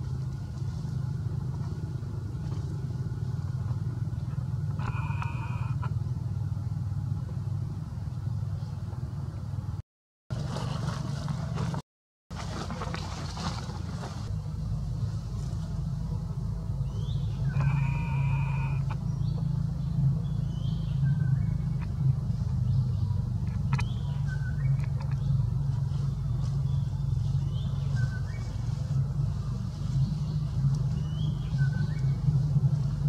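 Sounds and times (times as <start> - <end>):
low engine hum: 0.0 - 33.0
brief pitched call: 4.8 - 5.9, 17.5 - 18.9.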